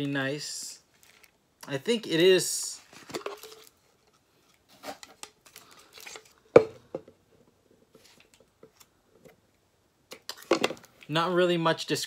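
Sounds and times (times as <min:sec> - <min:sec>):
plastic tumbler clicks and rustles: 0:03.0 - 0:03.7.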